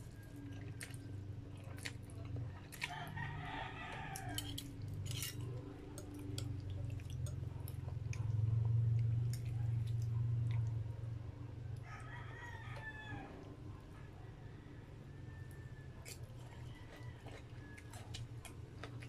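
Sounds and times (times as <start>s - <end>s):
rooster crowing: 2.9s - 4.7s, 11.8s - 18.2s.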